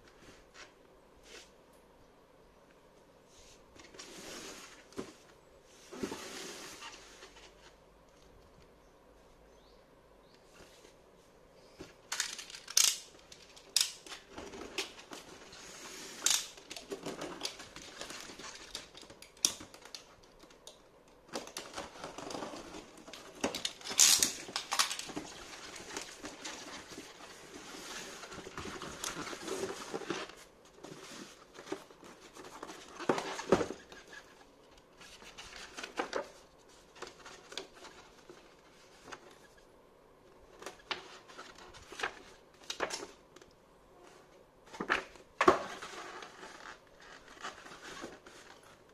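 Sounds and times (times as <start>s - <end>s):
cardboard and paper rustling: 11.7s - 20.6s, 21.3s - 39.6s, 40.5s - 43.3s, 44.1s - 48.9s.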